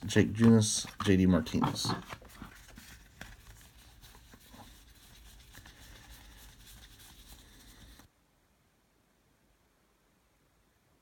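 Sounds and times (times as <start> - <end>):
cards rustling and ticking: 0.0 - 8.1.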